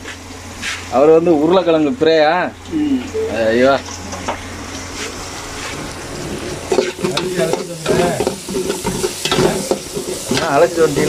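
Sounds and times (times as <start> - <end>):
onions sizzling in hot oil: 5.2 - 11.0.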